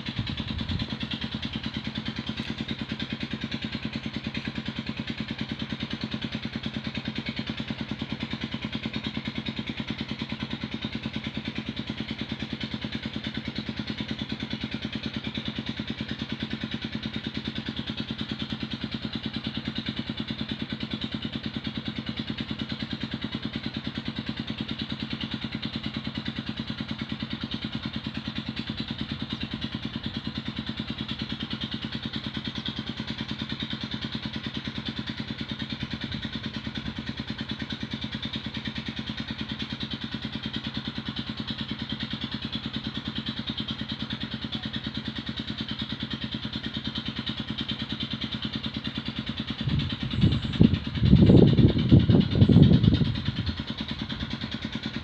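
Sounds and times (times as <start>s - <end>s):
engine idling: 0.0s - 55.0s.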